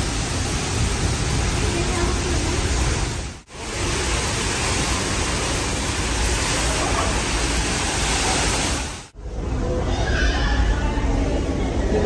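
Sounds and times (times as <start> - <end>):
waterfall rushing: 0.0 - 9.2.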